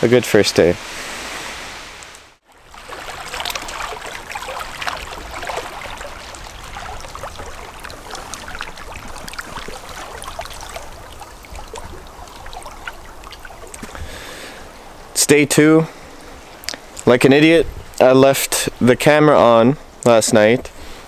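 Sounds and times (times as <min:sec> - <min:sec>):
waves lapping against rocks: 0:02.4 - 0:15.1.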